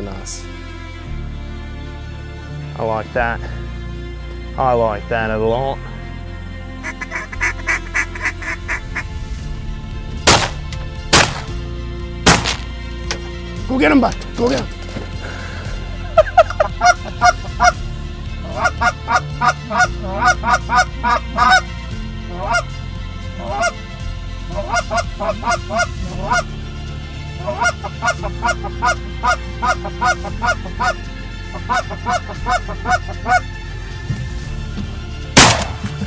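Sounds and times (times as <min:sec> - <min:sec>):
faint background music: 0:00.0 - 0:36.0
goose call honks and clucks: 0:18.4 - 0:21.6, 0:22.3 - 0:22.7, 0:23.4 - 0:23.8, 0:24.5 - 0:26.5, 0:27.4 - 0:33.4.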